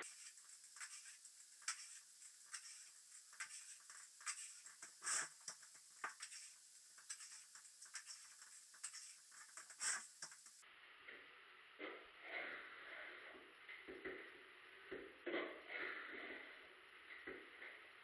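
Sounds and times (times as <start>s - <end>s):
trowel working wet plaster: 0.0s - 10.6s.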